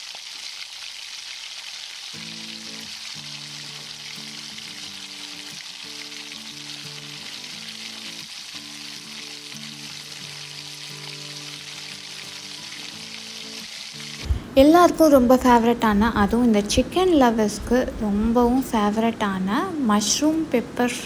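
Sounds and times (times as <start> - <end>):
food sizzling in a pan: 0.0 - 15.8
soft background music: 2.2 - 21.0.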